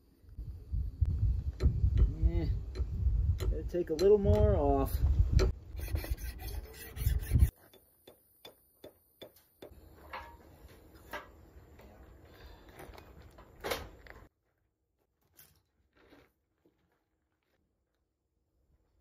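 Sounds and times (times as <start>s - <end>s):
hand file rasping on metal: 5.7s - 7.6s.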